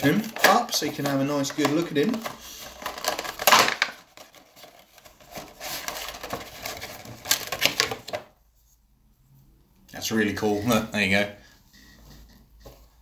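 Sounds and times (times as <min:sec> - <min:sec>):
cardboard and plastic rustling: 0:00.0 - 0:08.4.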